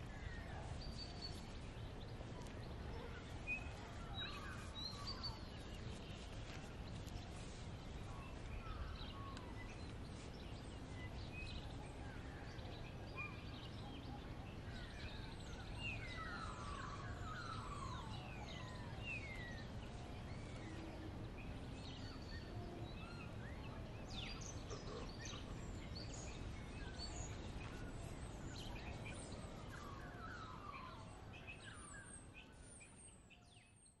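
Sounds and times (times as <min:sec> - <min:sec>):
birds chirping and whistling: 0:15.9 - 0:19.7, 0:26.1 - 0:33.8.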